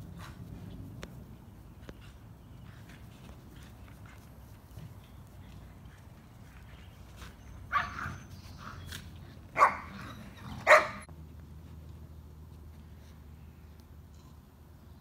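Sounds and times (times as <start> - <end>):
dog barking: 7.7 - 8.2, 9.6 - 10.0, 10.6 - 11.1.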